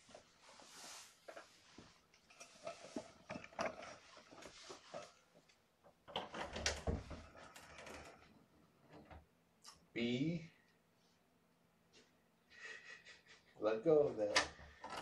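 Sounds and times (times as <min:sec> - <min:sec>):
rustles of movement: 0:00.0 - 0:05.6.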